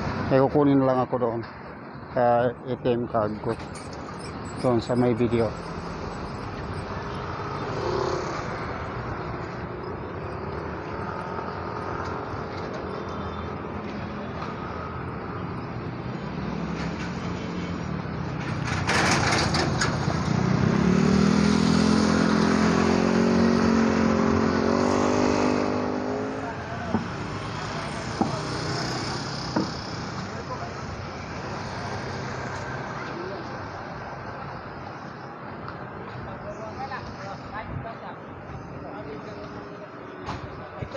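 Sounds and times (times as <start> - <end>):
street traffic: 0.0 - 40.9
vehicle engine passing close: 18.6 - 30.6.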